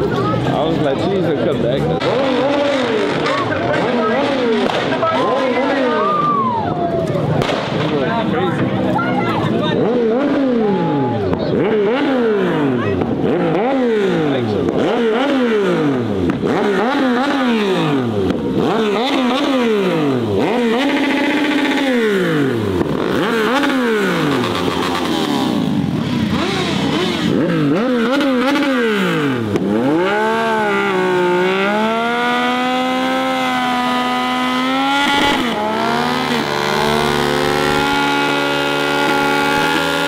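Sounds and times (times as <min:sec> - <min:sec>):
car engine revving: 0:00.0 - 0:06.3, 0:07.0 - 0:40.0.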